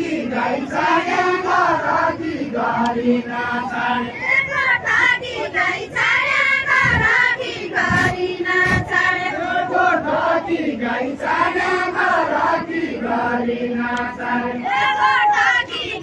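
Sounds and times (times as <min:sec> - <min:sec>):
women chanting together: 0:00.0 - 0:16.0
dull low thumps: 0:06.6 - 0:09.1.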